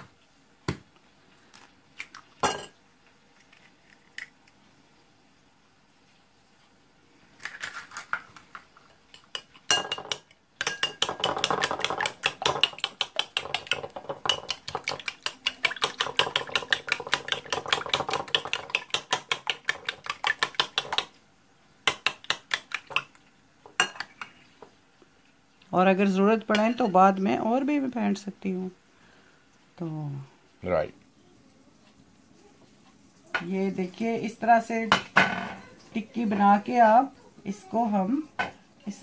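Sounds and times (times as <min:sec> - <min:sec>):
utensil clinking against bowl: 0:09.1 - 0:21.0.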